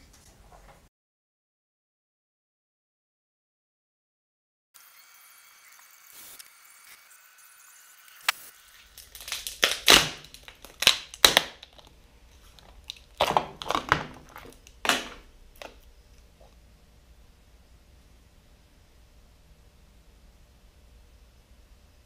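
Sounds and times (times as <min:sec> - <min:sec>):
tape ripping off: 0:08.1 - 0:15.8.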